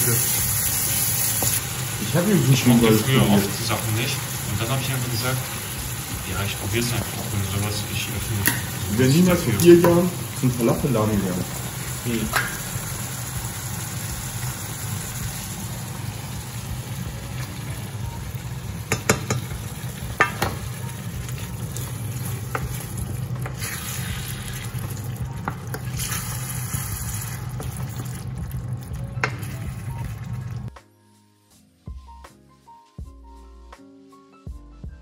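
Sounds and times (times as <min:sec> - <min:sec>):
food sizzling in oil in a pan: 0:00.0 - 0:30.4
spoon knocking against pan: 0:18.9 - 0:19.6, 0:20.2 - 0:20.7
wooden spoon stirring: 0:18.9 - 0:23.7.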